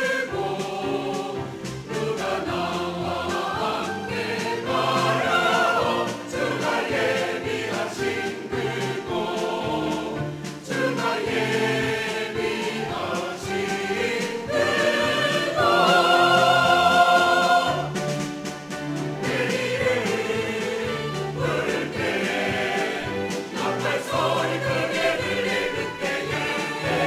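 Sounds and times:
choir singing a hymn: 0.0 - 27.0
piano accompaniment: 0.0 - 27.0.

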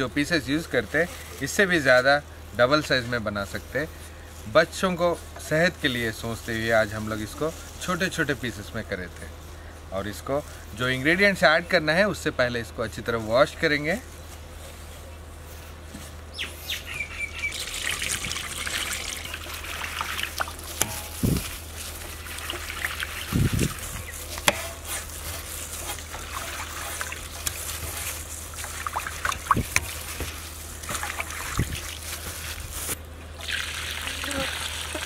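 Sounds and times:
water splashing and trickling: 17.4 - 24.6, 25.4 - 35.0.

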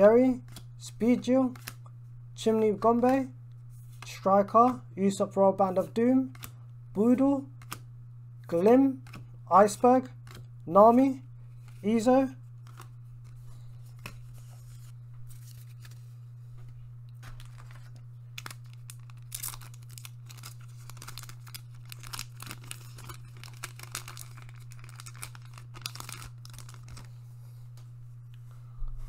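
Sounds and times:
steady low hum: 0.0 - 29.0
foil pack tearing and crinkling: 17.2 - 27.2.

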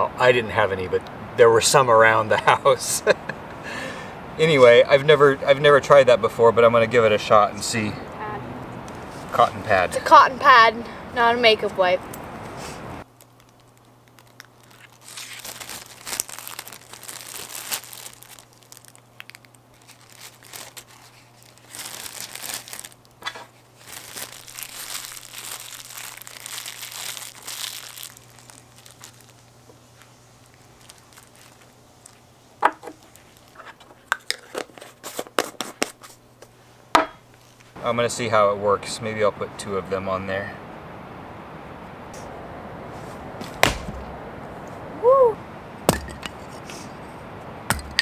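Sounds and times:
plastic bag crinkling: 13.0 - 35.3.

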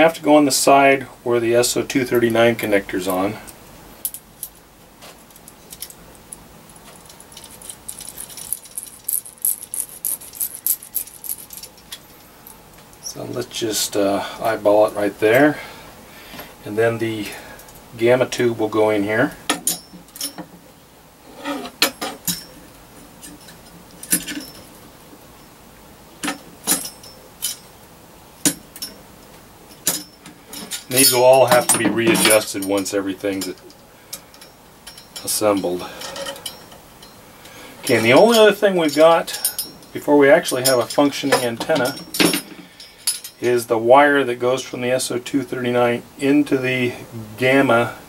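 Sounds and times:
small metal parts clinking: 4.0 - 4.6, 5.2 - 13.1, 19.5 - 20.5, 21.5 - 24.8, 26.2 - 27.7, 29.7 - 37.2, 37.8 - 43.6.

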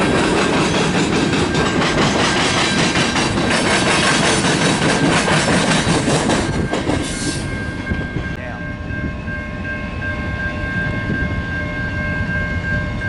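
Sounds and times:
train wheels clattering: 0.0 - 8.3
train wheels rumbling on rail: 0.0 - 13.0.

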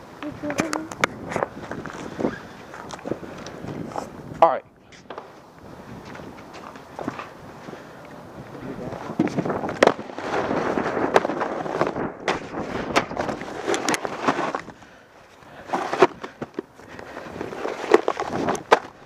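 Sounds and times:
snowboard scraping over snow: 8.6 - 14.8, 15.5 - 19.0
snowboard knocks and clacks: 9.0 - 14.9, 15.6 - 19.0.

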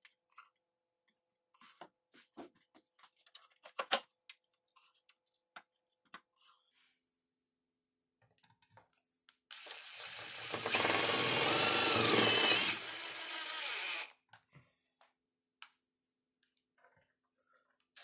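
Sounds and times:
impact driver driving screw: 9.5 - 14.1.

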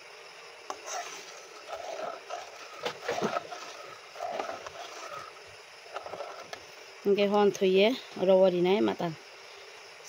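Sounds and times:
steady hiss: 0.0 - 10.0
fork stirring liquid in metal pan: 0.7 - 5.4.

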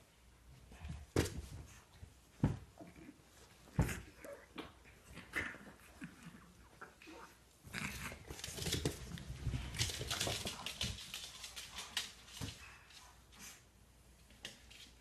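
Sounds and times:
puppies scuffling: 7.7 - 15.0.

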